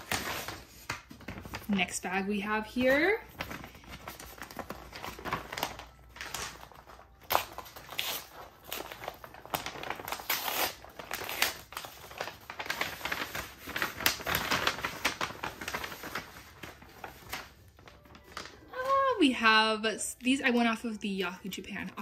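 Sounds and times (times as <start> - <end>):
paper and plastic crinkling: 0.0 - 19.5.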